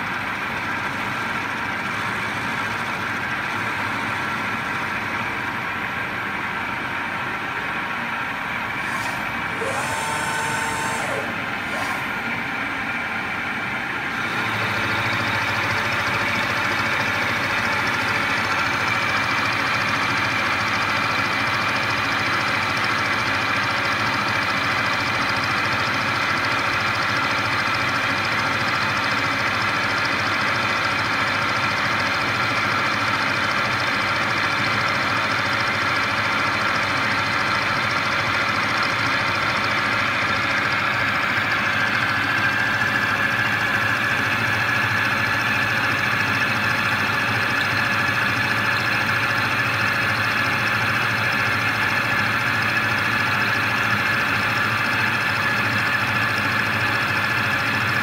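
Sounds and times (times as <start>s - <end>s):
milling machine cutting metal: 8.6s - 12.6s.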